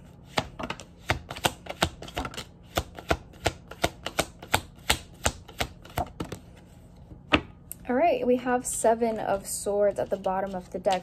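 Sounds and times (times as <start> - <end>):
cards tapping while shuffled: 0.2 - 6.5.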